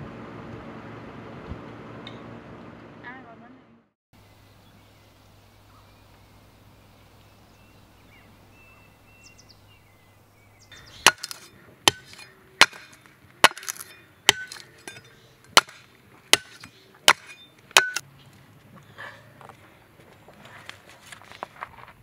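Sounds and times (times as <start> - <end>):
hatchet chopping wood: 11.0 - 18.0.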